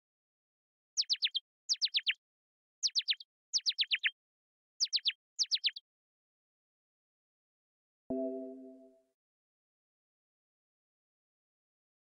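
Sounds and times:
synthesized bird chirps: 1.0 - 2.2, 2.8 - 4.1, 4.8 - 5.8.

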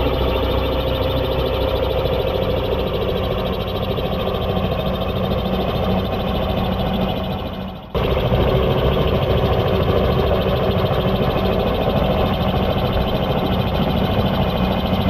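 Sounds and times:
helicopter rotor chopping: 0.0 - 15.0.

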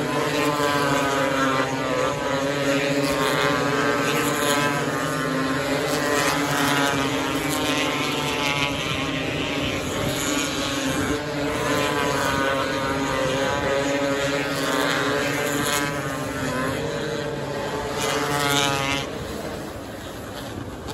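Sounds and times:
racing car engines: 0.0 - 20.4.

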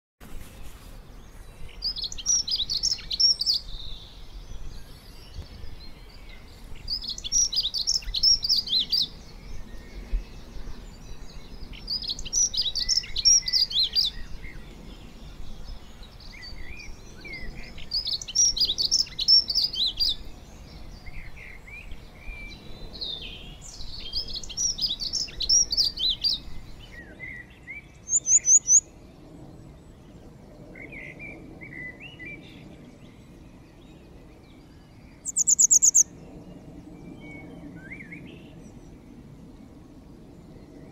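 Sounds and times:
songbird singing high notes: 28.1 - 28.8, 35.2 - 36.1
soft low bird calls: 29.5 - 38.9.

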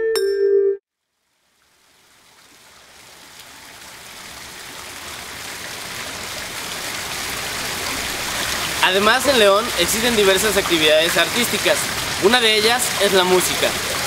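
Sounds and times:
mallet percussion note: 0.0 - 0.8
water flowing: 1.1 - 14.0.

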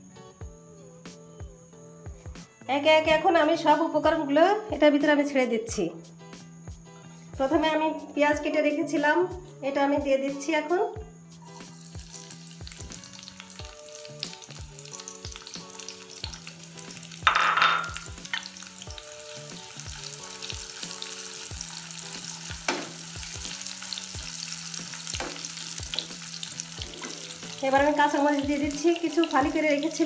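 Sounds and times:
onions sizzling in hot oil: 11.4 - 30.0.

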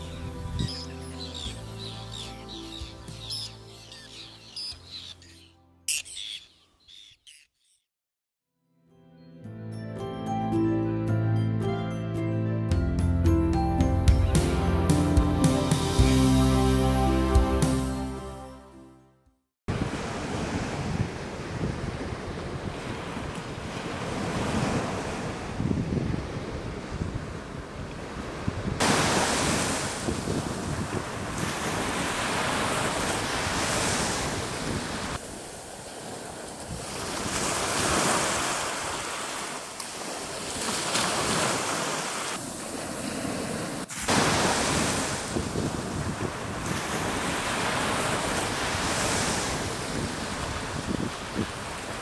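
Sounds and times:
wind on microphone: 0.0 - 1.0, 19.7 - 35.4, 44.1 - 52.0
small waves breaking on beach: 19.7 - 52.0.

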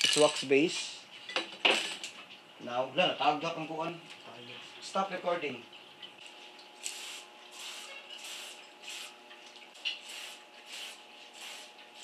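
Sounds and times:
aerosol can spraying: 6.8 - 9.1, 10.0 - 12.0.

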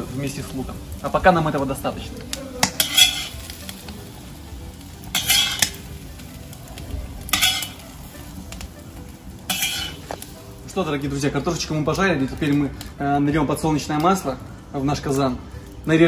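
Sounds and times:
potatoes sizzling in oil: 0.0 - 16.0
metal spatula scraping pan: 2.7 - 3.4, 5.1 - 5.7, 7.3 - 7.8, 9.5 - 10.2.

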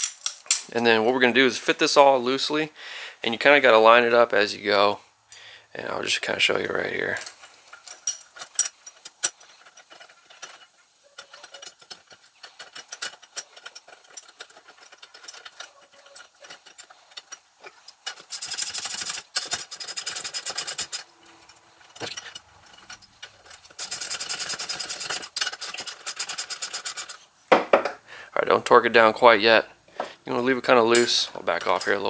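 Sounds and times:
metal parts clinking: 0.0 - 0.7, 7.0 - 27.2, 30.8 - 32.0
hand ratchet clicking: 18.0 - 21.1, 21.9 - 27.2.

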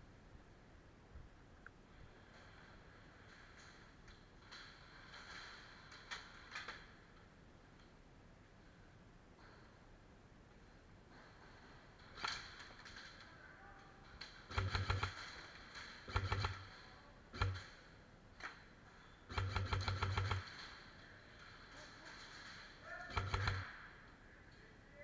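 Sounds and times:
airsoft rifle firing bursts: 14.5 - 17.8, 19.3 - 20.7, 23.0 - 23.9.

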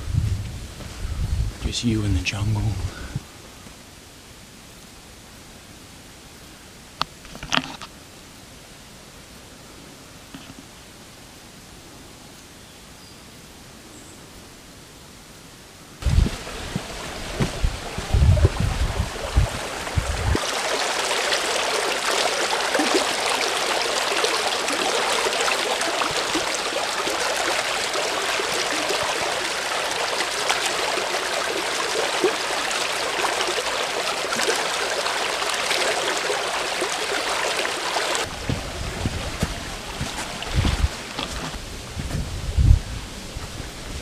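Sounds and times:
low thumps and rumble: 16.0 - 20.4, 38.3 - 42.9
creek rushing over boulders: 16.0 - 44.0.

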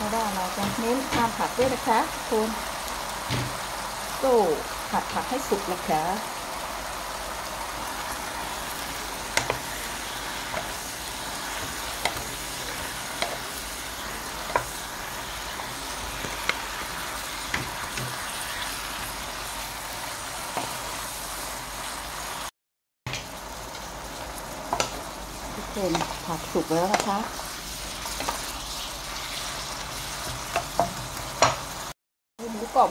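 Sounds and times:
food sizzling in pan: 0.0 - 22.5, 23.1 - 32.9
wooden spatula clicking on pan: 9.3 - 9.6, 12.0 - 12.3, 13.2 - 13.4, 24.7 - 25.0, 26.9 - 27.2.

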